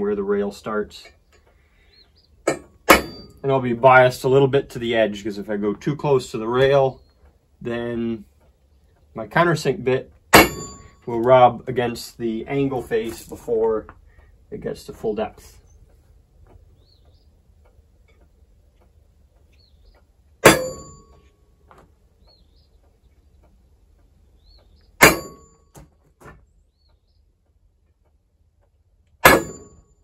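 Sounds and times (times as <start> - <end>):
hammer striking metal punch: 2.4 - 3.4, 10.3 - 11.1, 20.4 - 21.3, 25.0 - 25.9, 29.2 - 29.9.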